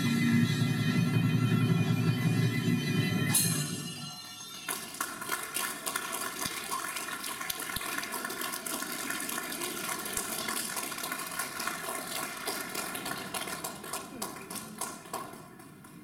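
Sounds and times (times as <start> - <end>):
last note ringing: 3.3 - 5.0
audience applauding: 4.6 - 16.0.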